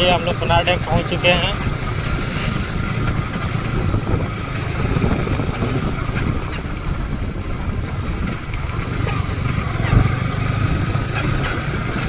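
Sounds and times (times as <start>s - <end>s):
motorcycle engine running: 0.0s - 12.0s
wind buffeting microphone: 0.0s - 12.0s.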